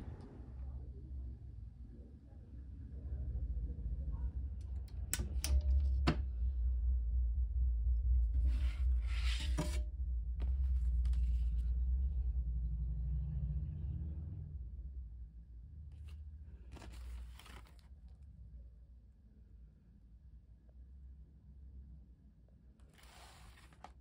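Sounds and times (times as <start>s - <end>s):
low steady rumble: 0.0s - 24.0s
rubbing rustling scrape: 8.4s - 9.8s, 22.8s - 24.0s.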